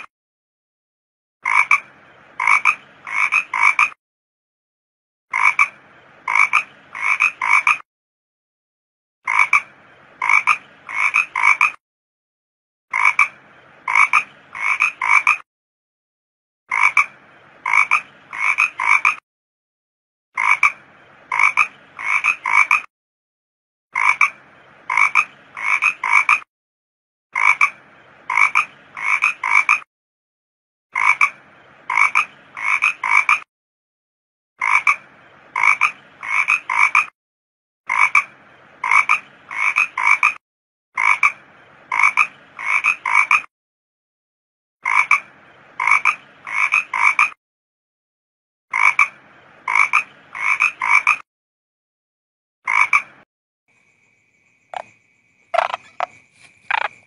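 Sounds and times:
frog calls: 0:01.4 - 0:04.0, 0:05.3 - 0:07.8, 0:09.3 - 0:11.8, 0:12.9 - 0:15.4, 0:16.7 - 0:19.2, 0:20.4 - 0:22.9, 0:24.0 - 0:26.5, 0:27.4 - 0:29.9, 0:31.0 - 0:33.5, 0:34.6 - 0:37.1, 0:37.9 - 0:40.4, 0:41.0 - 0:43.5, 0:44.8 - 0:47.4, 0:48.7 - 0:51.2, 0:52.7 - 0:57.0.

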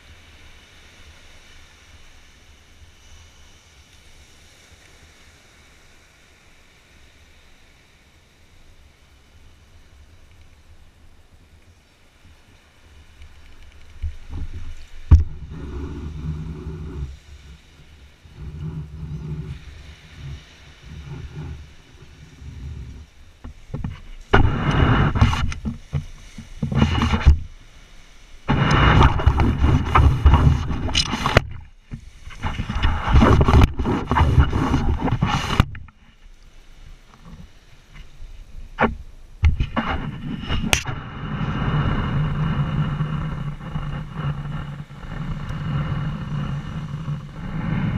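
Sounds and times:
pump in wet sand: 0:14.0 - 0:27.6, 0:28.4 - 0:36.2, 0:38.8 - 0:47.9
low rumbling: 0:14.2 - 0:27.7, 0:28.4 - 0:36.0, 0:38.9 - 0:47.9.

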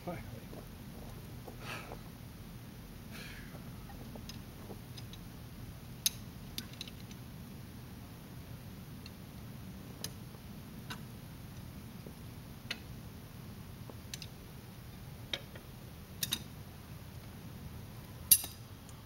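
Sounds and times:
metal tool clicks and clinks: 0:18.3 - 0:18.6.

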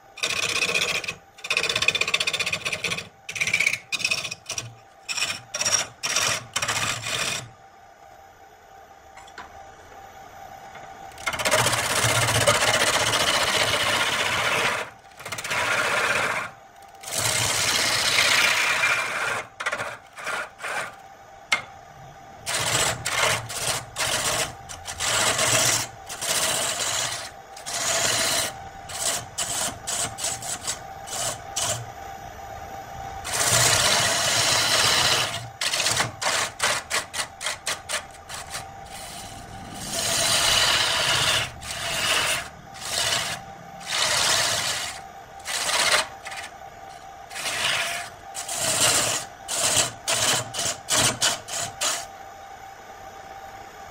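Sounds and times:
lathe humming: 0:00.0 - 0:07.7, 0:09.1 - 0:52.2
gouge rasping into wood: 0:22.5 - 0:31.8, 0:33.3 - 0:39.3, 0:39.9 - 0:46.5, 0:47.3 - 0:52.0.

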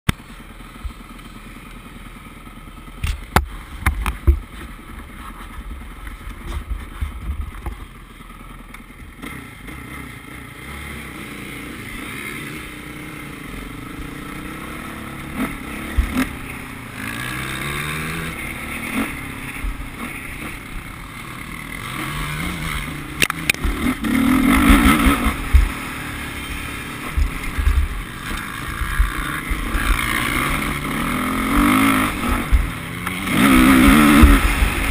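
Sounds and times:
wind rumbling on microphone: 0:03.1 - 0:07.9
dirt bike engine revving: 0:09.1 - 0:34.9.

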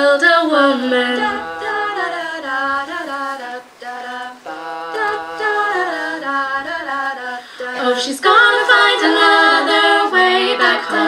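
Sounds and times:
women singing in close harmony: 0:00.0 - 0:11.0.

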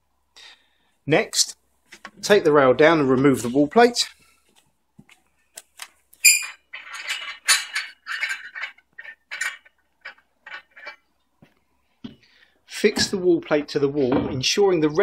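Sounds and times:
metal squeaking and scraping: 0:06.2 - 0:11.1.

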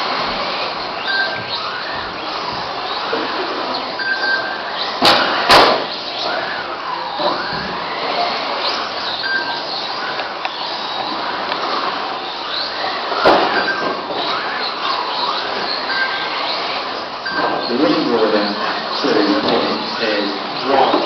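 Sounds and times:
rc car motors whining: 0:00.0 - 0:21.0
sharp knocks: 0:05.0 - 0:05.9.

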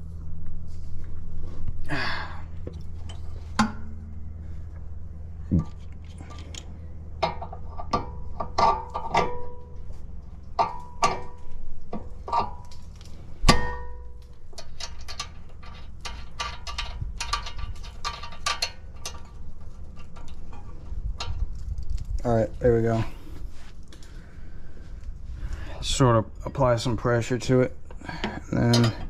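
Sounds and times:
wrench clinking on metal: 0:13.5 - 0:19.4, 0:28.5 - 0:29.0.

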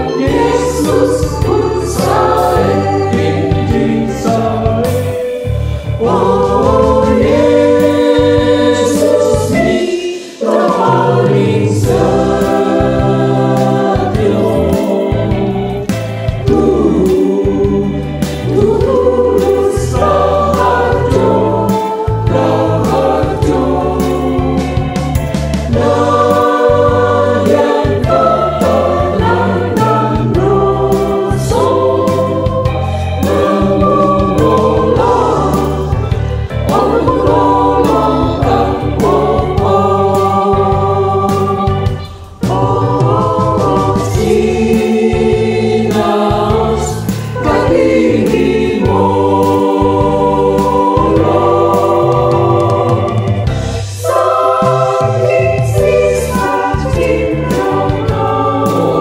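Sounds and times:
choir singing a hymn: 0:00.0 - 0:59.0
low instrumental accompaniment: 0:00.0 - 0:59.0.

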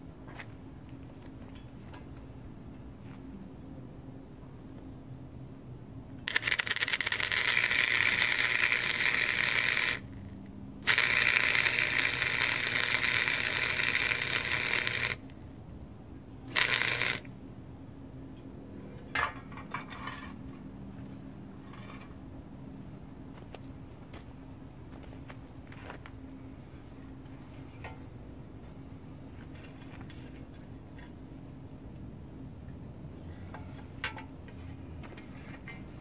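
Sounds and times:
steady low hum: 0:00.0 - 0:36.0
welder arc crackling: 0:06.3 - 0:10.1, 0:10.9 - 0:15.3, 0:16.5 - 0:17.3.

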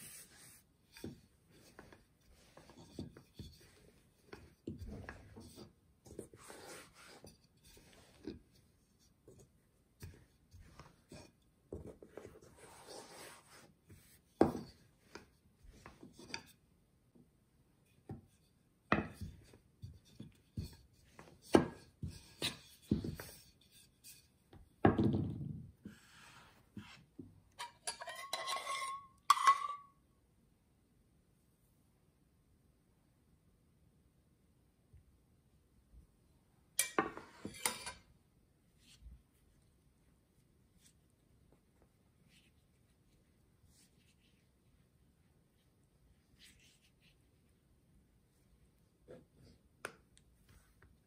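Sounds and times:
rolling pin rubbing dough: 0:00.0 - 0:16.4
metal spoon clinking bowl: 0:27.6 - 0:29.9.

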